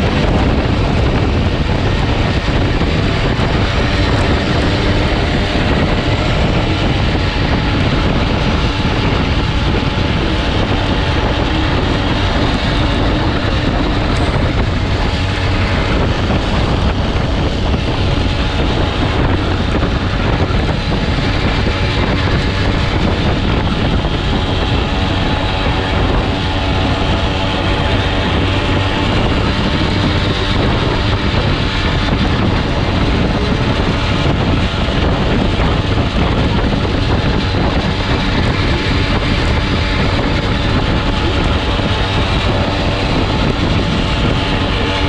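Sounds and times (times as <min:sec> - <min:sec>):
small motorbike engine running: 0:00.0 - 0:45.0
wind rush on microphone: 0:00.0 - 0:45.0.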